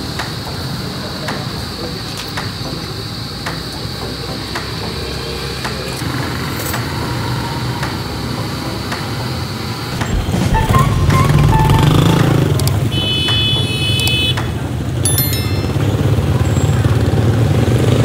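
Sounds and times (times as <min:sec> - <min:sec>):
motorcycle engines rumbling: 0:00.0 - 0:18.0
vehicles passing: 0:04.2 - 0:18.0.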